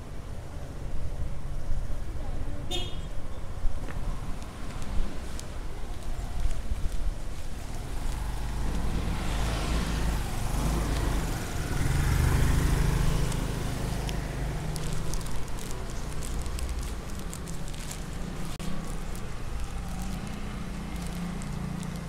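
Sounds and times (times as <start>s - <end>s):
vehicle driving past: 7.8s - 17.9s.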